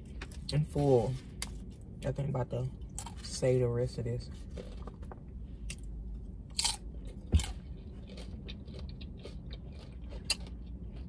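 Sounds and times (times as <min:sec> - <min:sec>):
crisp chewing crunches: 0:04.3 - 0:05.9, 0:06.5 - 0:11.0.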